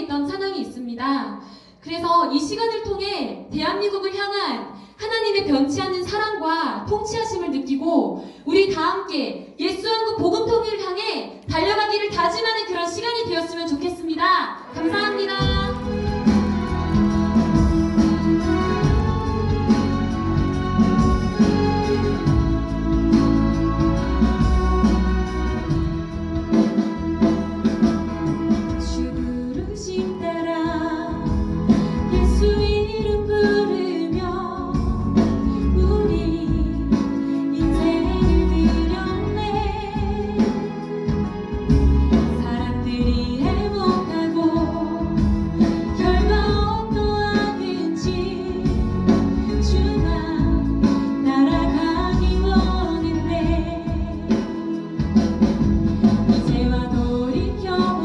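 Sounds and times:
woman singing into microphone: 11.5s - 25.8s, 28.7s - 41.2s, 42.1s - 55.1s, 56.2s - 58.0s
instrumental accompaniment: 13.2s - 58.0s.

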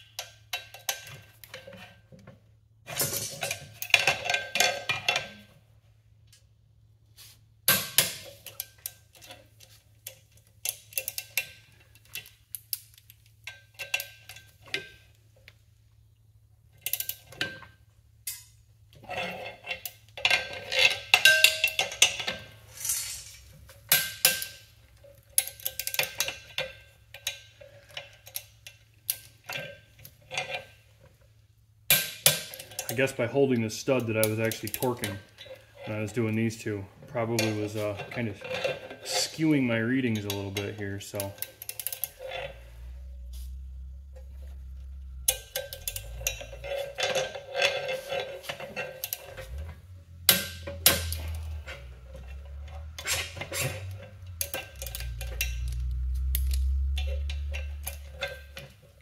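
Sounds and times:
metal tools clinking: 2.9s - 5.4s, 18.3s - 30.7s, 32.3s - 59.0s
ratcheting torque wrench clicking: 45.3s - 46.8s.

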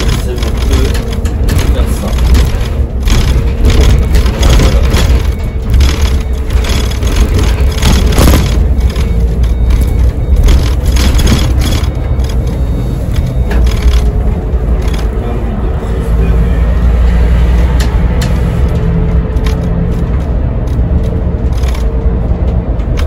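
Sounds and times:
sharp rattles: 0.0s - 15.2s
bus engine droning: 0.0s - 23.0s.

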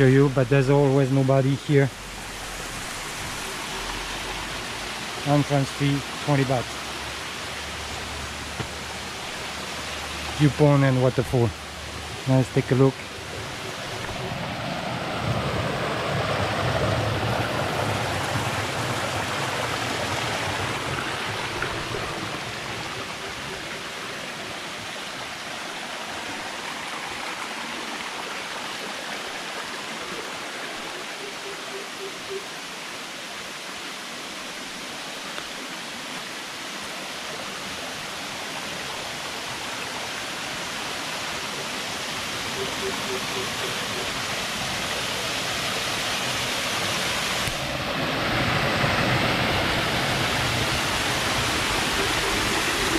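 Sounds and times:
stream running over rocks: 0.0s - 52.9s.

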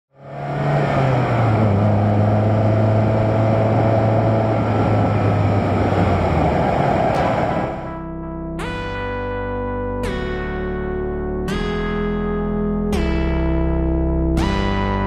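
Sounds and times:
car engine running: 0.1s - 7.9s
road and wind noise: 0.1s - 7.9s.

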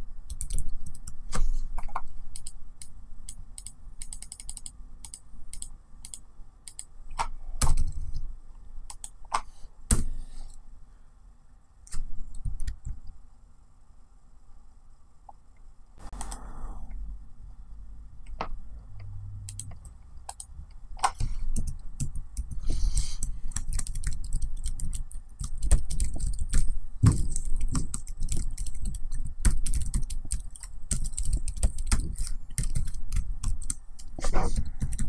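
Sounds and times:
typing on laptop keyboard: 0.3s - 1.2s, 1.8s - 2.9s, 3.6s - 8.0s, 19.5s - 35.0s.

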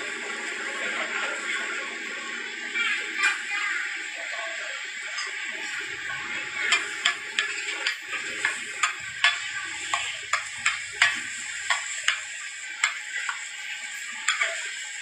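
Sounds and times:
metal spatula clacking on griddle: 6.7s - 13.5s, 14.2s - 14.7s.

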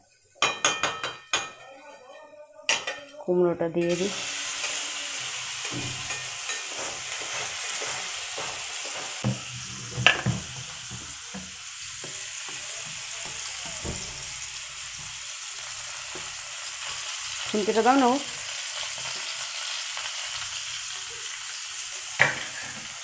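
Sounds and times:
food sizzling in hot oil: 0.0s - 23.0s
knocks in a frying pan: 0.4s - 1.6s, 5.7s - 6.2s, 7.8s - 14.4s, 22.2s - 22.9s.

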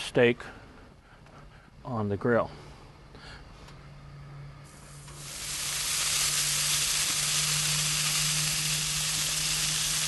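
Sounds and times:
steak sizzling on grill: 4.9s - 10.0s.

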